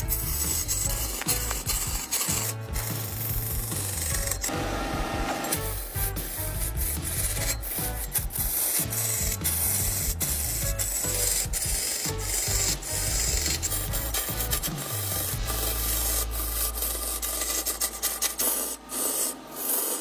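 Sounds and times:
lathe tool scraping wood: 0.0 - 20.0.

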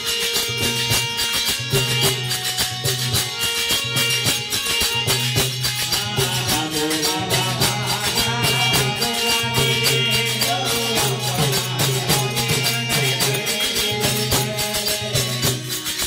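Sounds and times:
hand drum: 0.0 - 16.0
harmonium melody over drone: 0.0 - 16.0
jingling percussion: 0.0 - 16.0.

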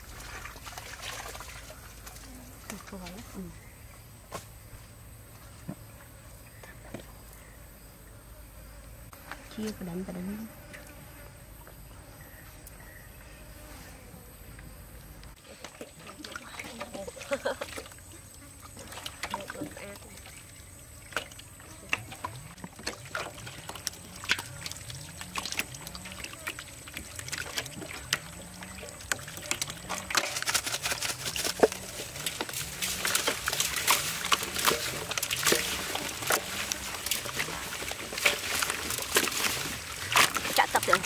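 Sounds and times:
wet intestines squelching in basin: 15.4 - 41.0.

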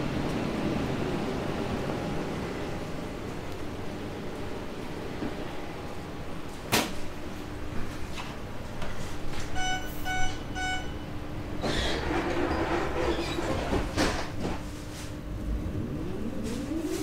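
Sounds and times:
standing train hum: 0.0 - 17.0
short warning beeps: 9.6 - 11.0.

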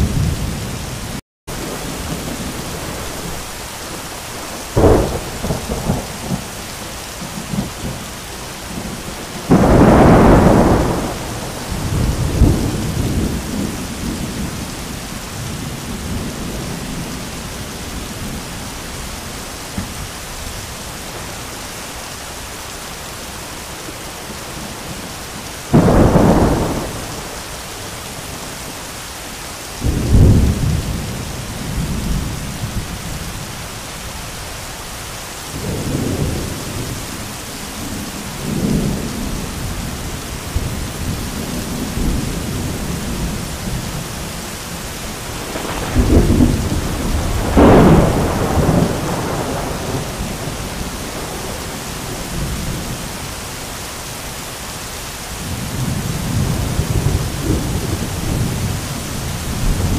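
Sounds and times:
heavy rain: 0.0 - 59.9
low rolling thunder: 1.5 - 8.1, 8.7 - 19.0, 25.7 - 28.6, 29.8 - 33.5, 35.5 - 53.2, 55.4 - 59.9
crack of thunder: 4.6 - 6.5, 8.8 - 14.5, 25.7 - 27.4, 45.3 - 52.4.

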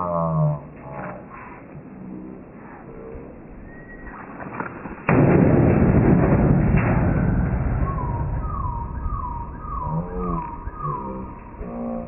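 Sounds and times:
rumbling clatter: 4.5 - 11.8.

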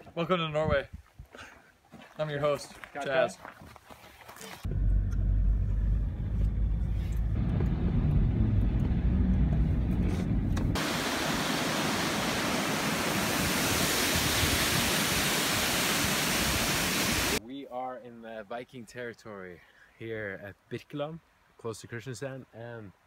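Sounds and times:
car road rumble: 4.7 - 10.8
waterfall pouring over rock: 10.8 - 17.4.

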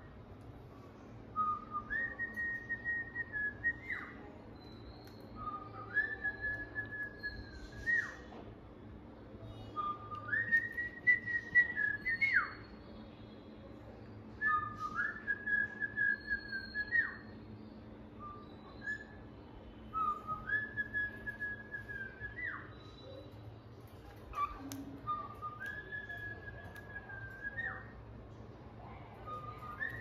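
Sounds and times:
cockatiel whistling: 1.4 - 8.3, 9.6 - 12.8, 14.4 - 17.4, 18.2 - 19.2, 19.9 - 23.3, 23.9 - 28.0, 29.2 - 30.0.

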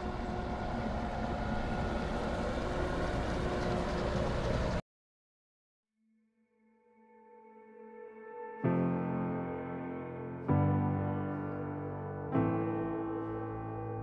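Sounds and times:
soft piano music: 6.9 - 14.0.

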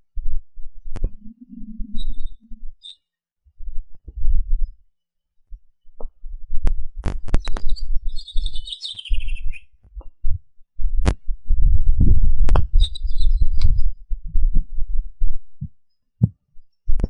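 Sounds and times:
bird chirping: 1.2 - 3.0, 7.4 - 9.8, 12.8 - 14.0
wind buffeting microphone: 10.2 - 15.7.

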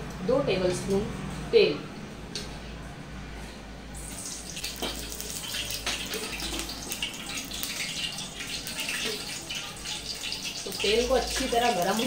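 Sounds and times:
oil pouring into metal pot: 4.0 - 11.4.

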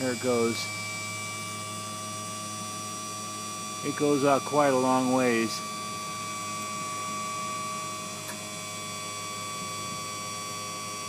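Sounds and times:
crane boom motor humming: 0.0 - 11.0.

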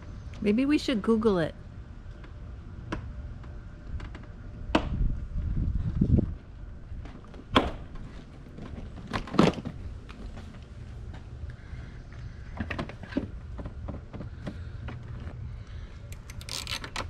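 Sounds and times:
hands clicking and rustling plastic: 16.0 - 17.0.

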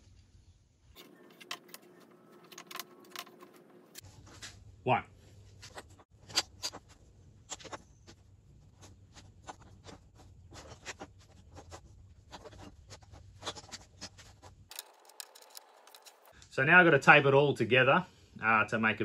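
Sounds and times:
wooden pieces clicking on workbench: 14.7 - 16.3.

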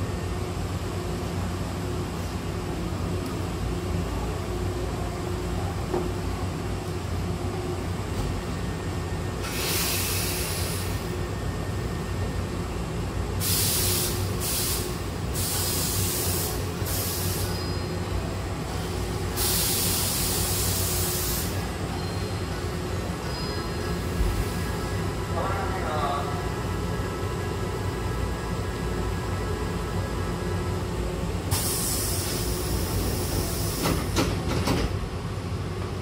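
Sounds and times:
train equipment humming: 0.0 - 36.0
compressed air hissing: 9.4 - 11.1, 13.4 - 17.8, 19.3 - 21.7, 31.5 - 34.2.

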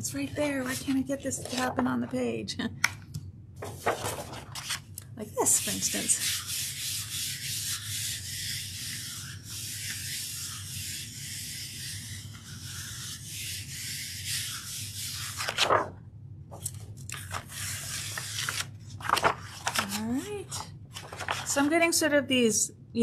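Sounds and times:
paper rustling: 0.6 - 1.9, 3.6 - 4.9, 14.5 - 21.8
paper swishing on plate: 3.6 - 4.8, 5.5 - 15.9, 17.3 - 20.0, 21.0 - 21.7.

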